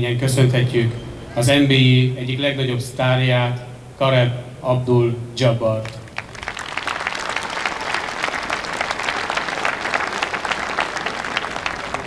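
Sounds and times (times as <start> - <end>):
crowd applauding: 5.9 - 12.0.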